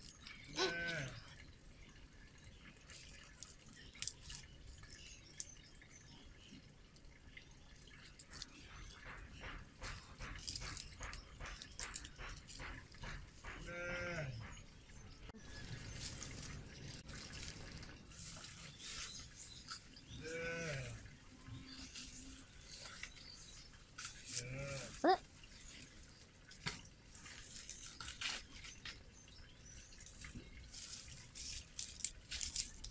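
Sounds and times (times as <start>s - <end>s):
animal bleating: 0.5s - 1.2s, 13.6s - 14.4s, 20.2s - 21.0s
twigs snapping and crackling: 31.4s - 32.9s.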